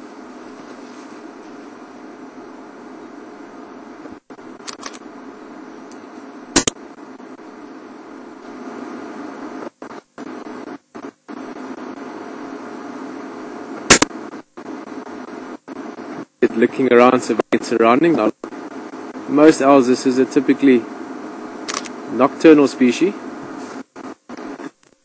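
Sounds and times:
steady low hum: 0.0 - 25.0
loud sharp clicks: 6.6 - 6.8, 13.9 - 14.2.

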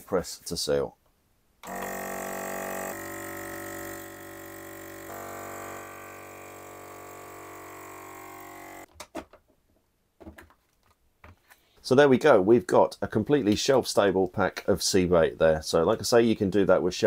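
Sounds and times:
vacuum sealer pump motor humming: 1.6 - 8.9.

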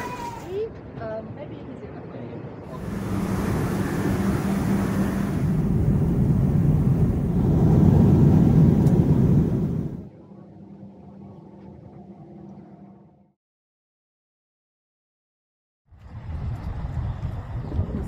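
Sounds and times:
jet engine rumble: 2.4 - 10.1.

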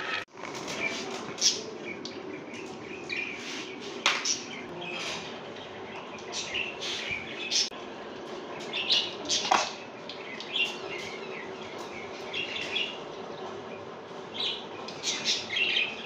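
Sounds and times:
small birds chirping: 0.5 - 16.0.

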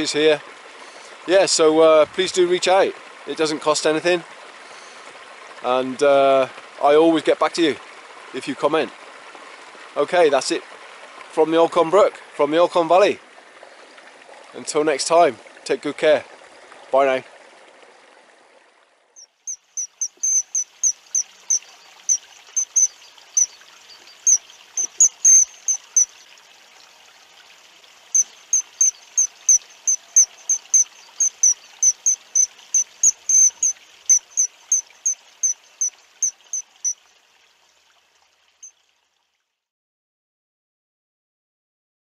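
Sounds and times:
faint running water: 0.0 - 39.6
short high chirps: 19.5 - 26.2, 28.2 - 37.0.

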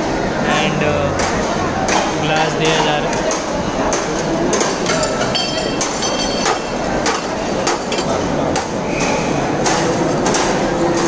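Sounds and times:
dining hall background din: 0.0 - 11.0
steel tumblers and plates clinking: 2.3 - 8.8.

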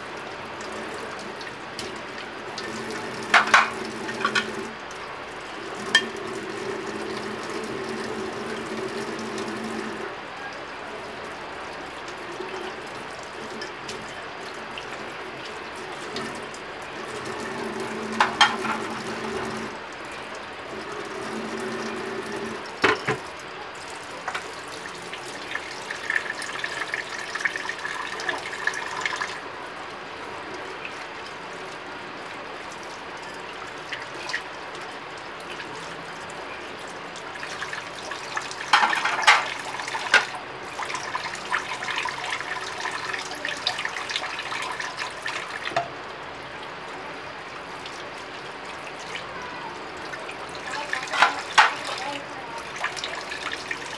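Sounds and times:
tap water running into sink: 0.0 - 10.2, 11.2 - 29.4, 30.8 - 46.1, 47.6 - 53.9
plates being scrubbed: 3.2 - 4.6, 17.5 - 19.6, 38.7 - 40.3, 51.0 - 52.0
plates clinking: 3.3 - 4.6, 5.9 - 6.2, 18.2 - 19.1, 22.8 - 23.2, 38.7 - 40.4, 51.0 - 52.0.

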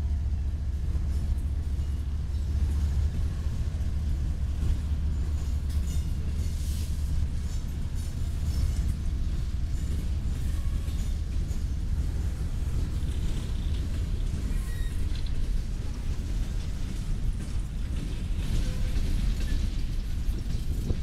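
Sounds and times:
freight train rumbling past: 0.0 - 21.0
high-pitched wheel squeals: 14.4 - 15.3.

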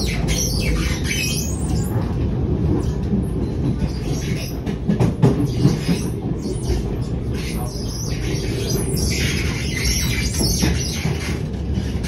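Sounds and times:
train rumble: 0.0 - 12.0.

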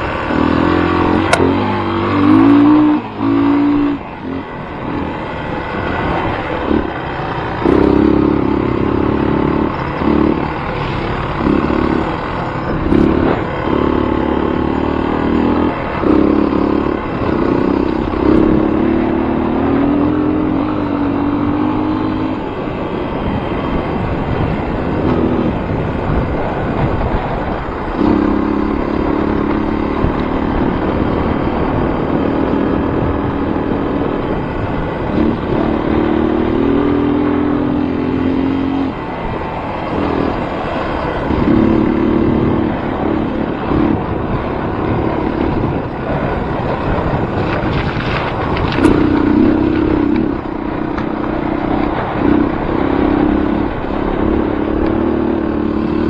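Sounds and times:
vehicle engine revving: 0.0 - 56.0.

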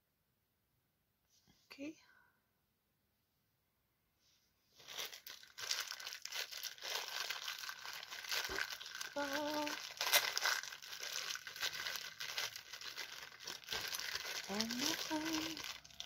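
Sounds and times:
plastic bag crinkling: 4.8 - 16.0.

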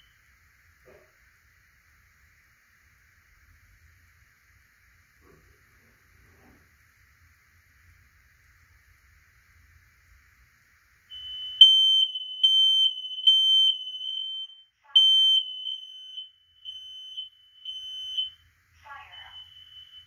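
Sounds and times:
smoke alarm high-pitched tone: 11.1 - 20.0.

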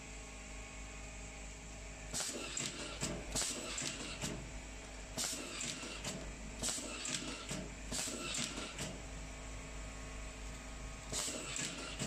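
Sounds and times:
cable-tie gun hissing bursts: 2.1 - 4.4, 5.1 - 9.0, 11.1 - 12.0.

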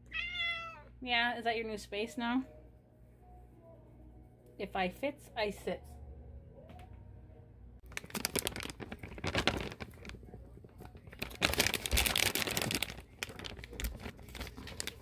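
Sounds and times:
plastic bag crinkling: 7.8 - 15.0.

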